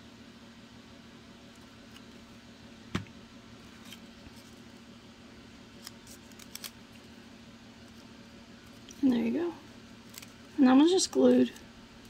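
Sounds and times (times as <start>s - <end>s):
low steady hum: 0.0s - 12.0s
paper handling: 5.8s - 6.7s.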